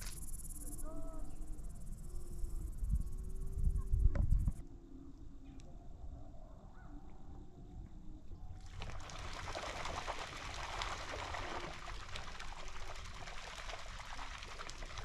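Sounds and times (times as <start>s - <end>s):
water lapping against rocks: 8.6s - 15.0s.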